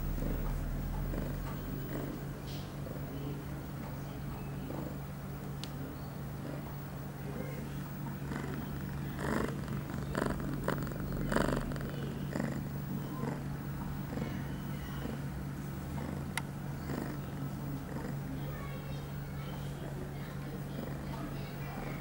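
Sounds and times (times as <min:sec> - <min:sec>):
cat purring: 0:00.0 - 0:22.0.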